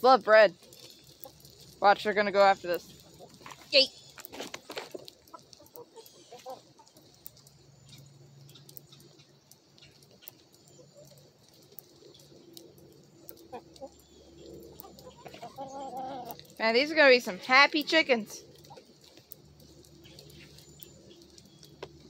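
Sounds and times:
hens clucking: 0.6s - 22.0s
faint ticks: 2.7s - 17.2s, 17.8s - 22.0s.

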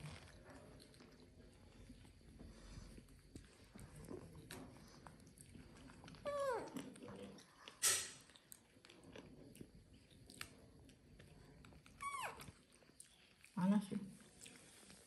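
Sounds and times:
chewing clicks: 3.3s - 13.6s.

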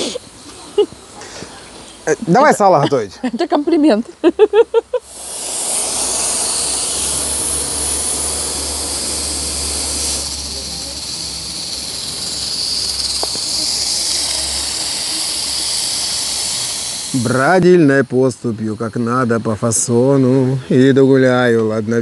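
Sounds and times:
low hum: 5.0s - 17.6s
steam hissing from pressure valve: 5.0s - 20.2s.

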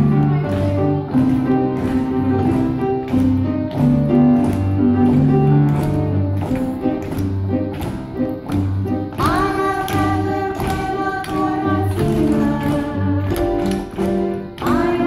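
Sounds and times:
upright piano bouncy accompaniment: 0.0s - 15.0s.

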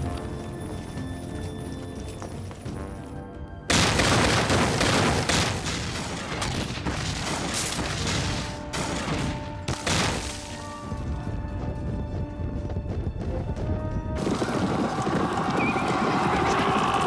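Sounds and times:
music: 0.0s - 17.0s.

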